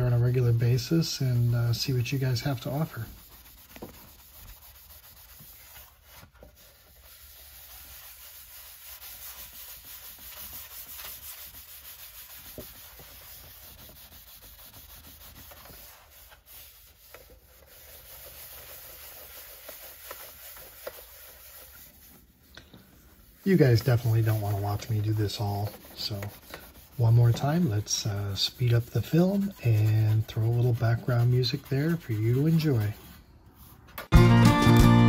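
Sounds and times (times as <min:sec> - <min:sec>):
pad scrubbing metal: 0:23.2 - 0:33.7.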